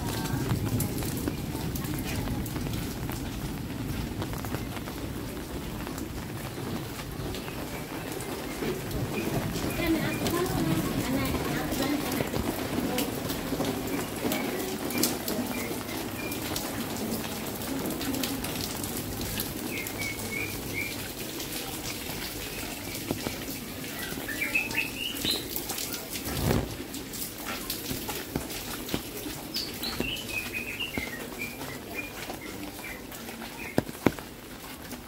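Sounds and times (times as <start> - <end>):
rain pattering: 0.0 - 35.0.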